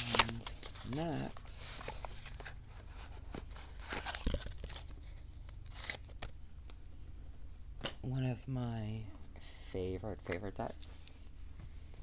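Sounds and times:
cards rustling and clicking: 0:00.0 - 0:06.8.

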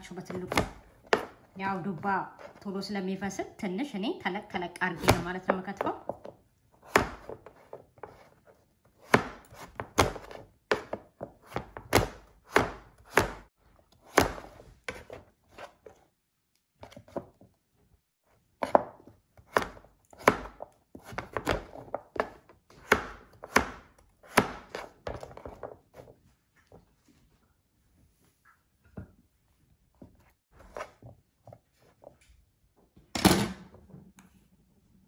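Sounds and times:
knife chopping on cutting board: 0:06.8 - 0:08.3, 0:09.0 - 0:15.7, 0:18.6 - 0:25.5.

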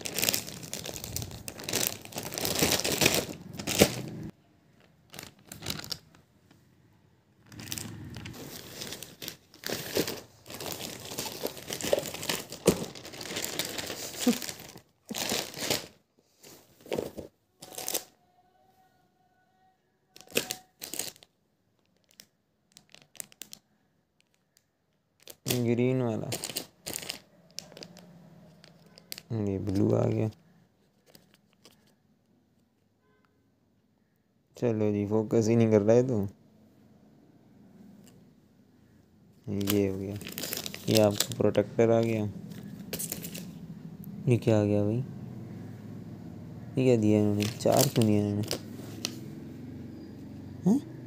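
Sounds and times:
plastic mailer bag tearing: 0:00.0 - 0:04.3, 0:05.1 - 0:06.2, 0:07.5 - 0:16.0, 0:16.9 - 0:18.1, 0:20.2 - 0:21.3, 0:26.2 - 0:29.9, 0:39.5 - 0:43.5, 0:47.0 - 0:49.1
plastic packets rustling: 0:00.0 - 0:06.2, 0:07.4 - 0:18.1, 0:20.2 - 0:24.6, 0:25.2 - 0:32.0, 0:39.4 - 0:43.6, 0:47.0 - 0:49.2.

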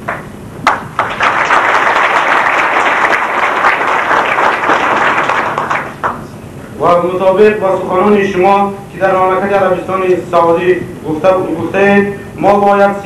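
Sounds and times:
audience applauding: 0:00.7 - 0:06.2.

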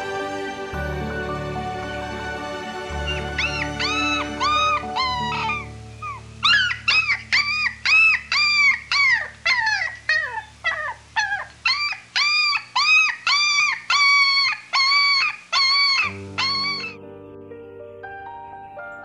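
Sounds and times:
animal yelping calls: 0:03.0 - 0:17.0.

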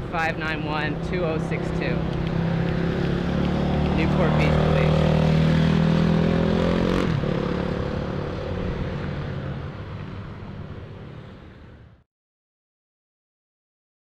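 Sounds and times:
traffic: 0:00.0 - 0:12.0
wind: 0:00.0 - 0:12.1
dirt bike engine running: 0:00.8 - 0:08.6.

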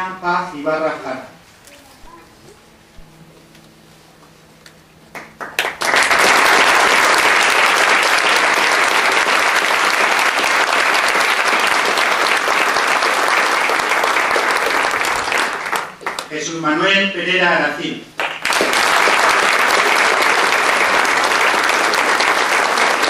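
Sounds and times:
audience applause: 0:05.1 - 0:16.3, 0:18.2 - 0:23.0.

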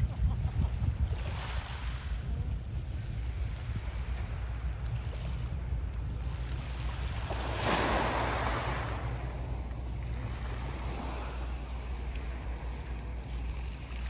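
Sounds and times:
wind rumble on microphone: 0:00.0 - 0:14.0.

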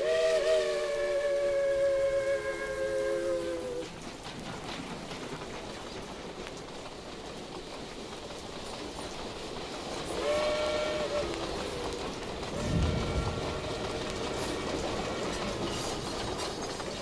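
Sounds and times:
steam whistle blast: 0:00.0 - 0:03.9, 0:10.2 - 0:11.4
steam locomotive rushing: 0:00.0 - 0:17.0.

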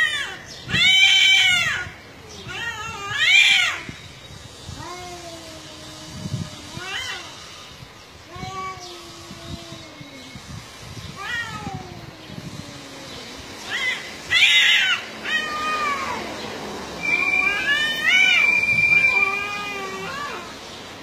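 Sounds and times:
cats yowling: 0:00.0 - 0:04.0, 0:04.8 - 0:07.4, 0:11.1 - 0:16.4, 0:17.0 - 0:20.6.

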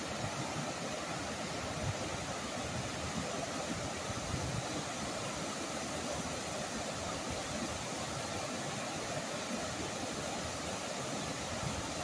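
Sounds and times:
river rapids rushing: 0:00.0 - 0:12.0.

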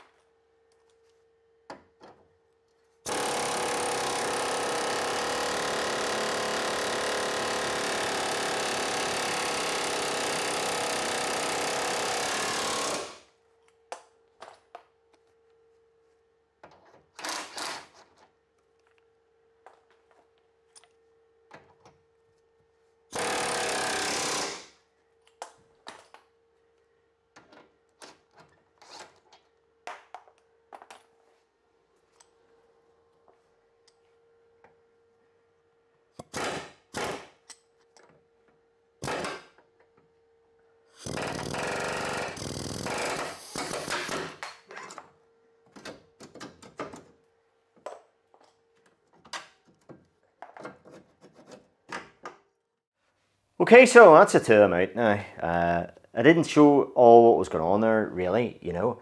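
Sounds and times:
pneumatic air hammer rattling: 0:17.1 - 0:18.0, 0:23.1 - 0:24.8, 0:39.0 - 0:39.6, 0:40.9 - 0:44.8.

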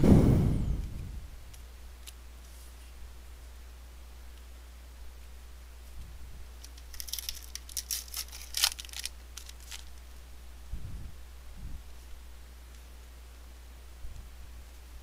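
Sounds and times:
card pack wrapper tearing and crinkling: 0:06.6 - 0:10.0.

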